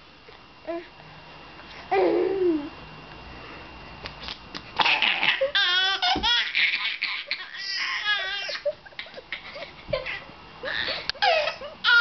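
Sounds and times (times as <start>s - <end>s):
baby laughing: 4.8s - 12.0s.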